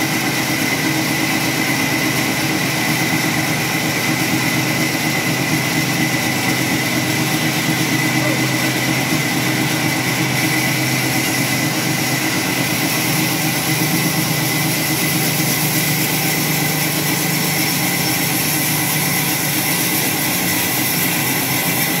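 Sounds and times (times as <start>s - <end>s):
high even whine: 0.0s - 22.0s
sawmill machinery humming: 0.0s - 22.0s.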